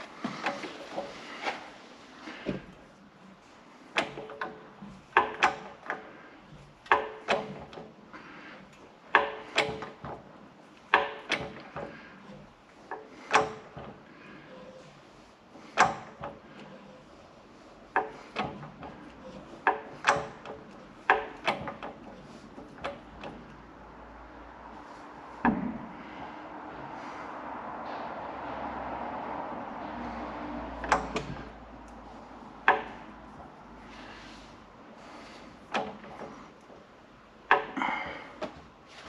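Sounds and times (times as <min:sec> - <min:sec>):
metallic knocks and clanks: 0:03.9 - 0:15.0, 0:15.6 - 0:23.7, 0:24.7 - 0:27.0, 0:29.8 - 0:38.8.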